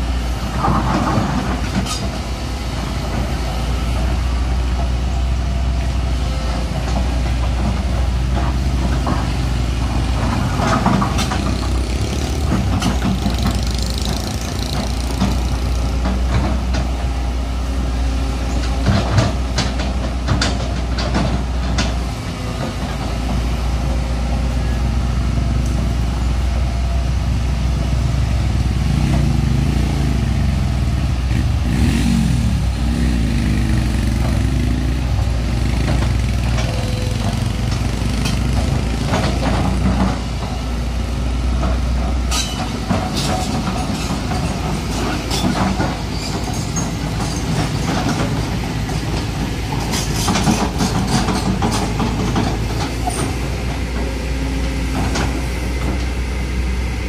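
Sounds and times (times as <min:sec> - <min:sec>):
excavator diesel engine running: 0:00.0 - 0:57.0
metal clanks and scrapes on gravel: 0:42.2 - 0:48.3.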